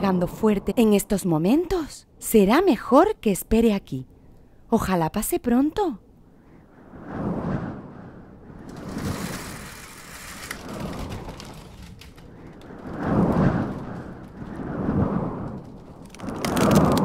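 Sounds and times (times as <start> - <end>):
gusting wind: 0.0 - 17.0
rain: 8.6 - 17.0.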